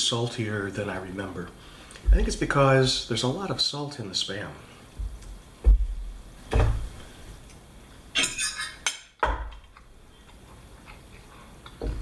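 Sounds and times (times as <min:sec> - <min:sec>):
dull thump: 0:02.1 - 0:02.4, 0:05.0 - 0:07.0
fork clinking on a plate: 0:08.2 - 0:09.1.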